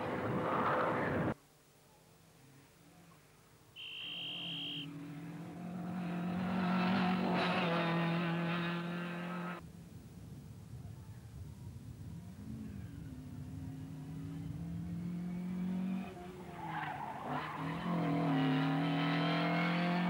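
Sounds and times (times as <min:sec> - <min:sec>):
short high-pitched tone: 0:03.8 - 0:04.8
rally car engine at high revs: 0:05.1 - 0:09.6, 0:17.2 - 0:20.0.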